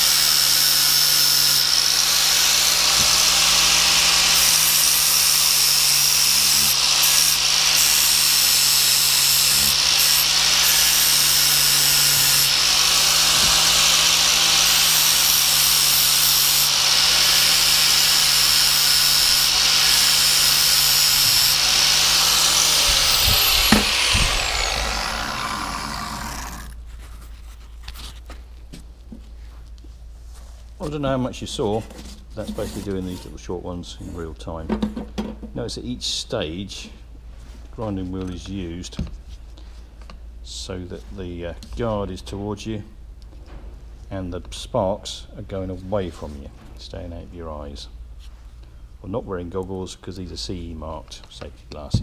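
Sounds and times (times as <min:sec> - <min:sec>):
angle grinder grinding steel: 0:00.0 - 0:26.8
grinder winding down whine: 0:00.0 - 0:26.8.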